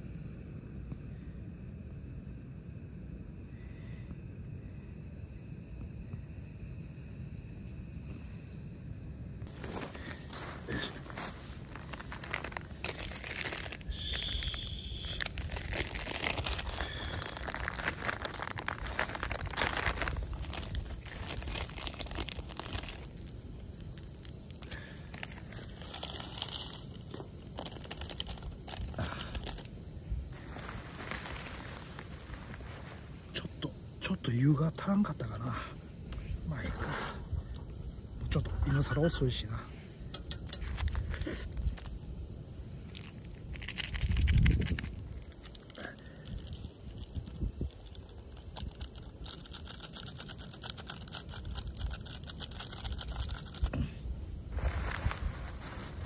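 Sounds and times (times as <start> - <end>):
plastic wrapper crinkling and tearing: 9.5 - 29.7, 30.3 - 33.1, 40.5 - 42.0, 42.9 - 53.7, 54.5 - 56.0.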